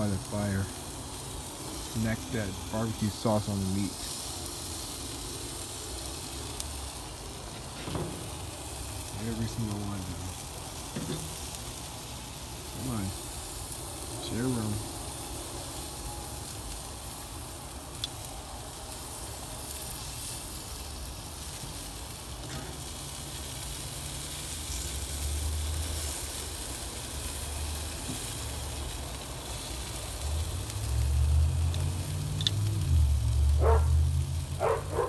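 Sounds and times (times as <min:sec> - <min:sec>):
meat sizzling on a grill: 0:00.0 - 0:35.0.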